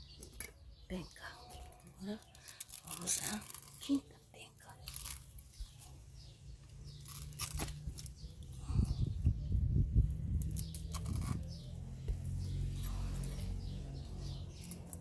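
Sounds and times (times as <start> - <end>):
knife scraping fibrous stem: 2.5 - 4.1, 6.8 - 8.2, 10.4 - 11.6.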